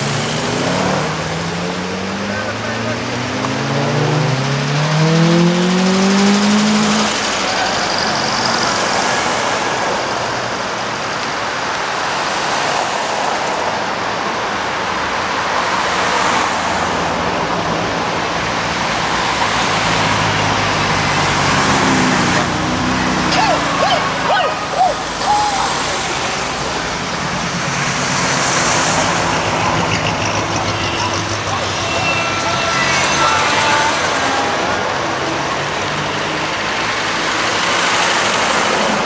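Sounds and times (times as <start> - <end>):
cars passing: 0.0 - 39.0
car engine accelerating past: 0.1 - 7.5.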